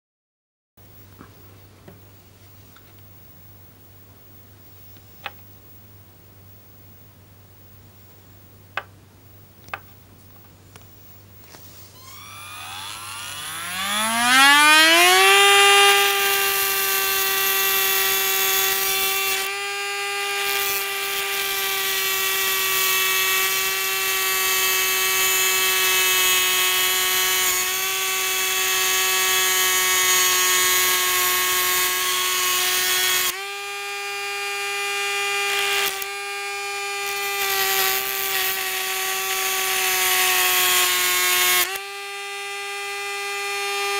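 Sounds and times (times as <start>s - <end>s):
rotary tool motor whine: 11.8s - 43.9s
cutting wheel grinding metal: 12.0s - 43.9s.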